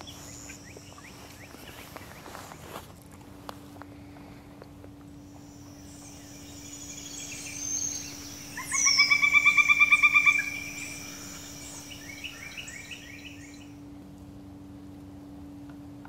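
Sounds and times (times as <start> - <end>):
woodpecker calling: 0.0 - 2.3, 5.3 - 13.8
small birds singing: 0.0 - 2.6, 5.2 - 13.8
steady low hum: 0.0 - 16.0.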